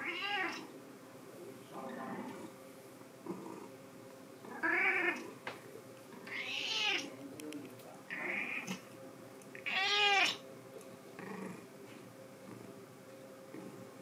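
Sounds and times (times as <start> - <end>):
cat meowing: 0.0 - 0.6, 4.5 - 5.2, 6.3 - 7.1, 8.1 - 8.8, 9.6 - 10.4.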